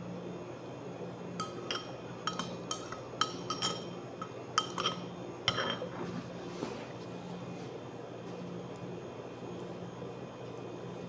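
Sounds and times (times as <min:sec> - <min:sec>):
spoon clinking against ceramic bowl: 0:01.4 - 0:05.9.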